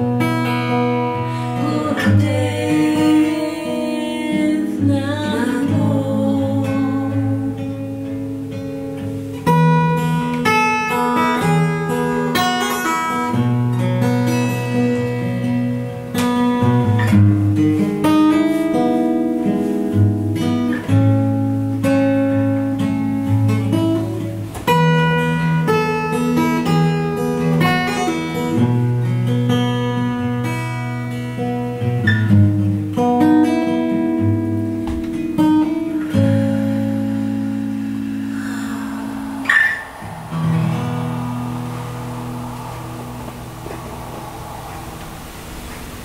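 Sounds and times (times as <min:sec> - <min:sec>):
acoustic guitar strumming: 0:00.0 - 0:46.0.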